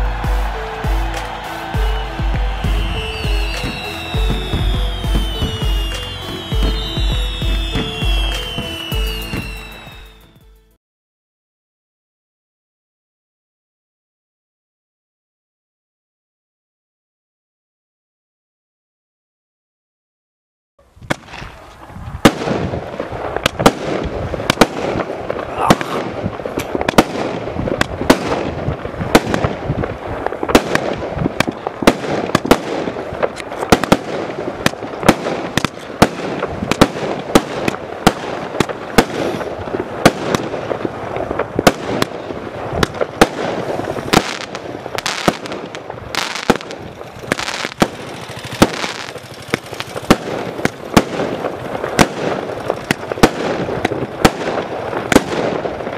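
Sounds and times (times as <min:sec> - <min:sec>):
fireworks shots bursting: 0:00.0 - 0:10.2, 0:21.0 - 0:55.9
dense crackle and hiss: 0:21.1 - 0:55.9.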